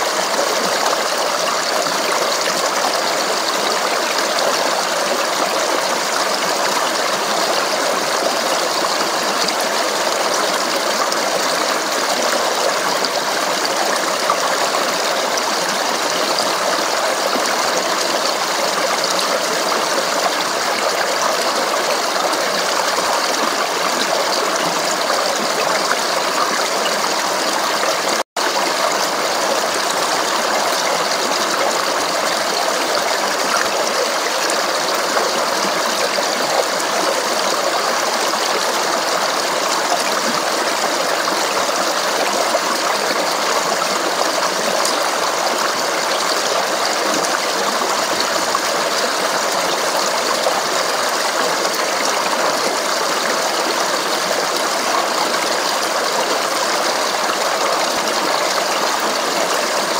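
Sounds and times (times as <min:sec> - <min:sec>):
stream babbling over rocks: 0:00.0 - 0:59.9.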